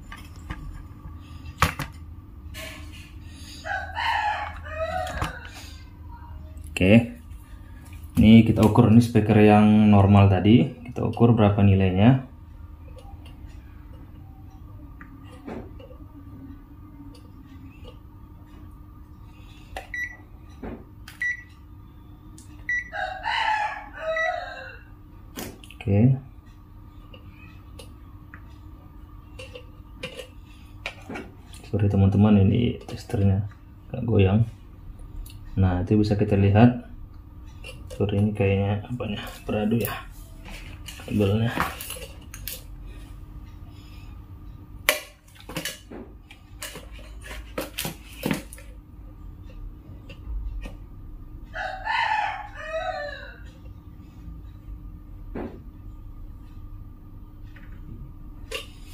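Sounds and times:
low steady hum: 0.0s - 58.9s
rooster crowing: 3.5s - 5.9s, 22.7s - 25.0s, 51.5s - 53.6s
multimeter beeping: 19.9s - 20.2s, 21.2s - 21.6s, 22.7s - 22.9s.

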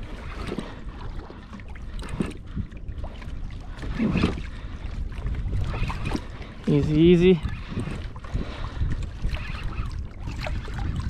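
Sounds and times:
water sloshing against kayak hull: 0.0s - 11.0s
wind rumbling on microphone: 0.0s - 11.0s.

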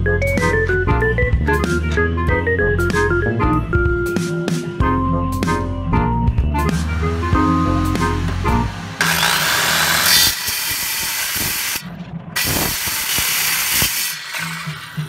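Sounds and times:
circular saw cutting wood: 6.7s - 15.0s.

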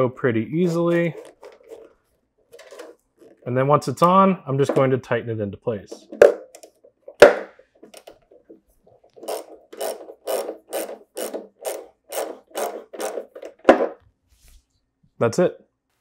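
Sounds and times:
ratchet-like clicks: 9.2s - 13.5s.

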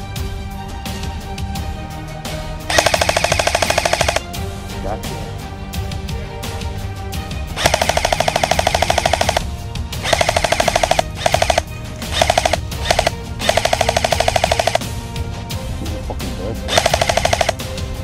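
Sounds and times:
background music: 0.0s - 18.0s
airsoft rifle firing bursts: 2.7s - 4.3s, 7.6s - 14.8s, 16.7s - 17.6s.

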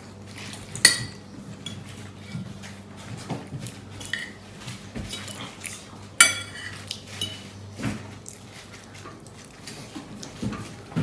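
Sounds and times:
cutlery clinking on a plate: 6.2s - 7.5s.

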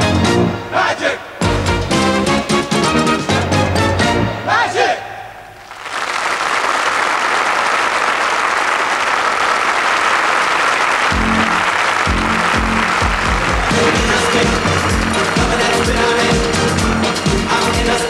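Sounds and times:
music: 0.0s - 4.6s, 11.1s - 18.0s
audience applauding: 5.6s - 18.0s
low bass beat: 11.1s - 18.0s.

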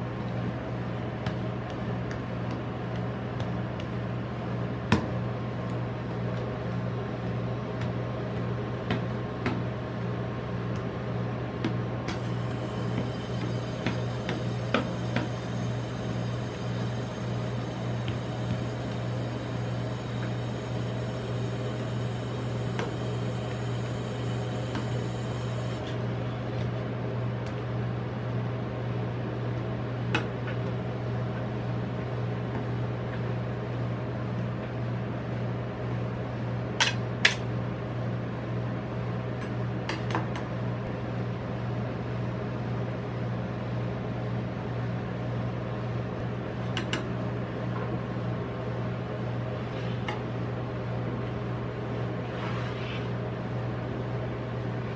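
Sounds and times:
refrigeration unit humming: 0.0s - 54.9s.

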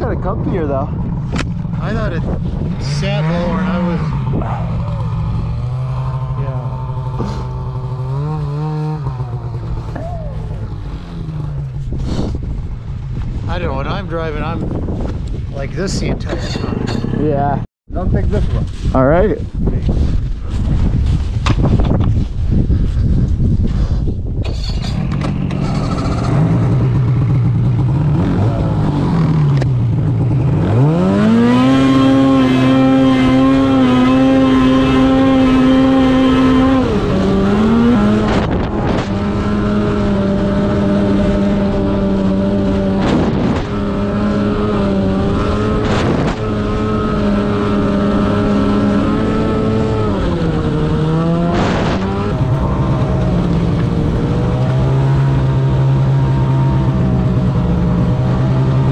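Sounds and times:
snowmobile engine revving: 1.6s - 12.4s, 25.2s - 58.9s.

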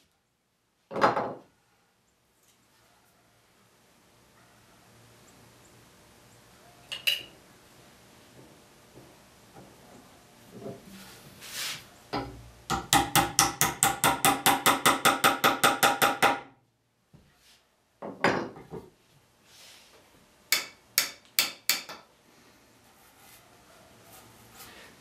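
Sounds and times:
hammer tapping wooden wedge: 12.2s - 16.5s, 20.5s - 22.1s.

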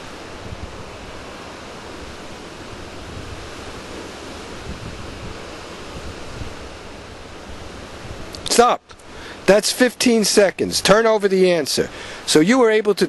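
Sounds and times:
wind buffeting microphone: 0.0s - 9.5s
wind: 0.0s - 13.0s.

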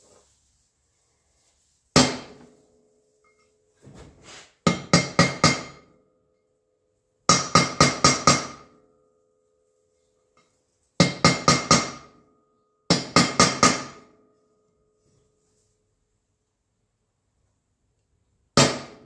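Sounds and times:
hammer tapping metal tool: 3.2s - 3.6s, 4.6s - 6.5s, 7.2s - 9.0s, 10.2s - 15.3s.

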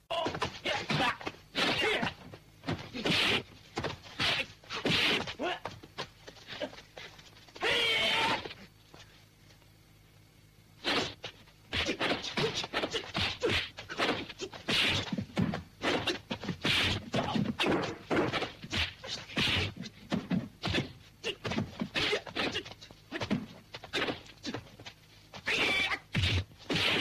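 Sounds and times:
punch and kick hits: 10.9s - 22.6s.

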